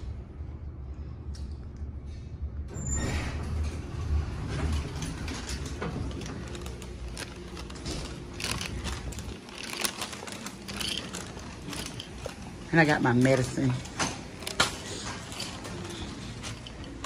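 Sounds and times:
elevator car hum: 1.9 - 17.0
elevator doors sliding open: 2.7 - 9.4.

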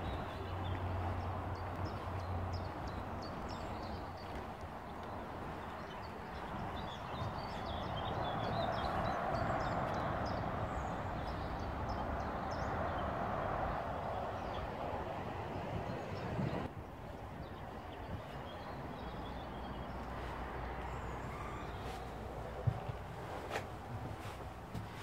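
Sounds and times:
footsteps on wooden decking: 0.0 - 10.4, 17.0 - 25.0
small birds chirping: 0.0 - 14.9, 15.5 - 25.0.

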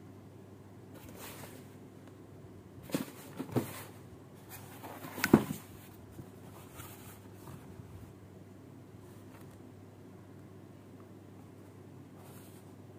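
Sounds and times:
toy packaging knocks and rustles: 5.0 - 5.7.

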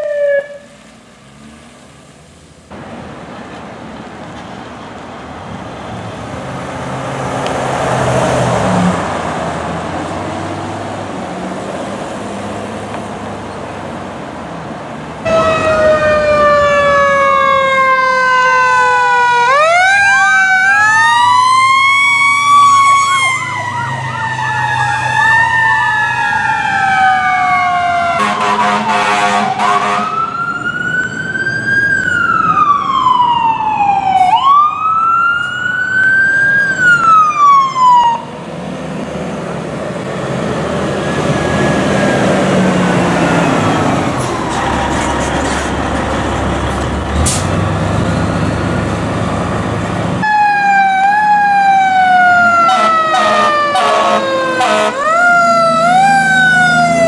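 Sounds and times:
fire engine sirens wailing: 0.0 - 0.8, 2.7 - 57.0
fire engine driving past: 0.0 - 57.0
air horn blast: 28.2 - 30.2, 52.7 - 55.1.

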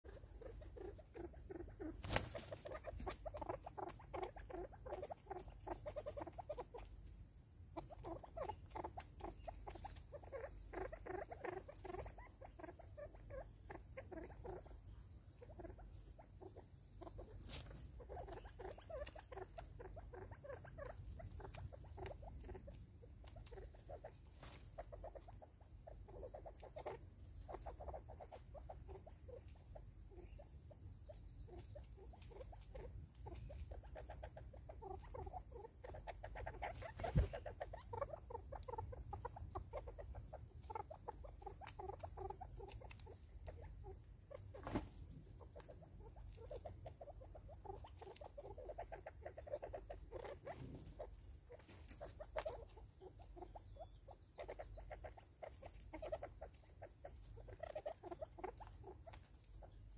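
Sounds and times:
beaks pecking at plastic feeder: 15.7 - 59.9.

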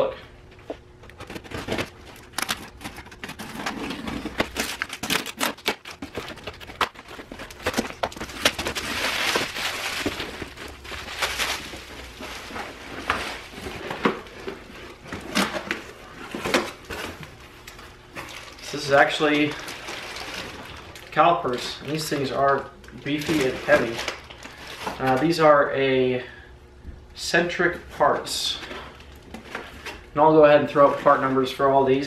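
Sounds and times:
plastic packing crinkling: 1.0 - 25.5.

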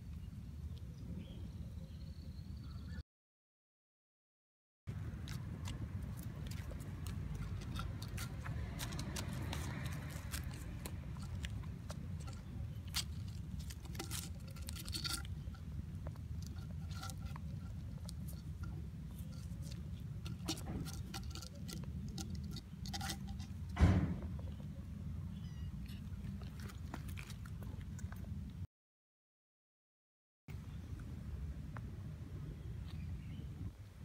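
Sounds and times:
kitten chewing crunching clicks: 4.9 - 23.7.

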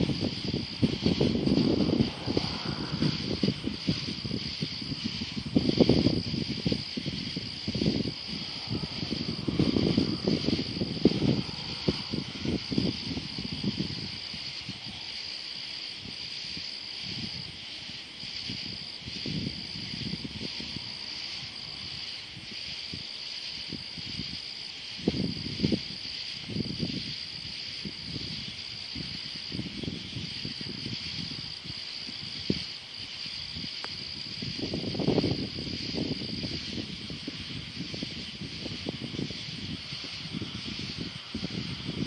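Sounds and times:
low rumbles and bumps: 0.0 - 14.0
crickets and night insects trilling: 0.0 - 42.0.

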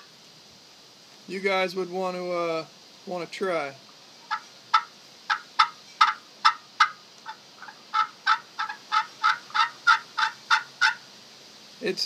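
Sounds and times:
friction turkey call: 4.3 - 11.1.

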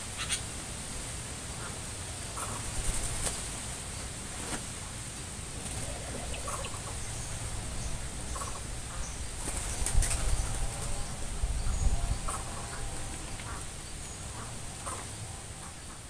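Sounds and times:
birds fluttering wings: 2.5 - 3.7, 5.5 - 6.9, 9.4 - 11.3
quiet bird calls: 5.5 - 16.0.

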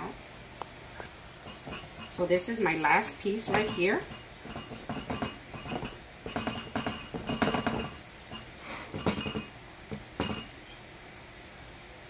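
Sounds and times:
clinks against glass dish: 1.5 - 2.2, 3.5 - 9.5, 10.2 - 10.6.

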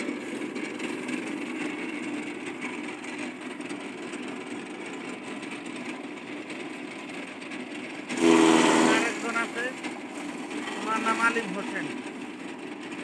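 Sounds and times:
chaff cutter running: 0.0 - 13.0
blades chopping straw: 8.0 - 12.0.

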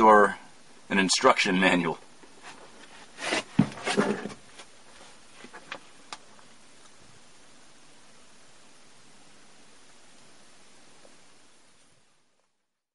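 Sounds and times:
faint steady hiss: 0.0 - 12.9
rustling and scraping: 2.2 - 6.5
dull knock: 3.6 - 4.3.

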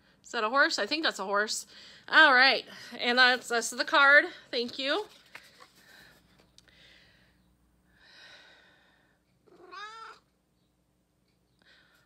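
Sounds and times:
cat meowing: 9.5 - 10.3.

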